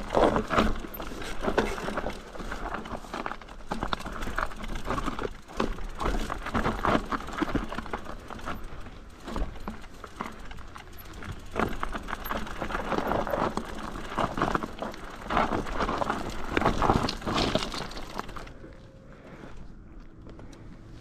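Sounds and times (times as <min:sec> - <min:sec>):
crunching over loose ground: 0:00.0 - 0:21.0.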